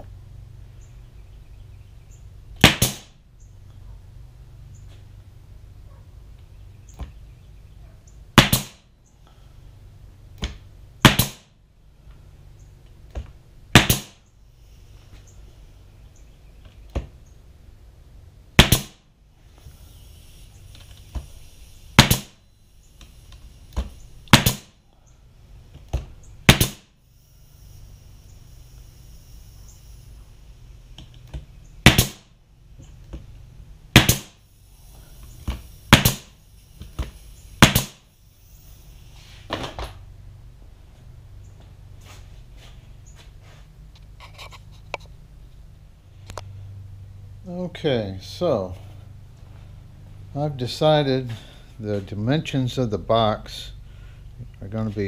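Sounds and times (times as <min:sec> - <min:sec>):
nail gun firing into wood: 0:02.6 - 0:03.2, 0:08.4 - 0:08.9, 0:10.4 - 0:11.5, 0:13.7 - 0:14.2, 0:18.6 - 0:19.0, 0:21.9 - 0:22.4, 0:23.7 - 0:24.8, 0:25.9 - 0:26.9, 0:31.8 - 0:32.3, 0:33.9 - 0:34.4, 0:35.4 - 0:38.1.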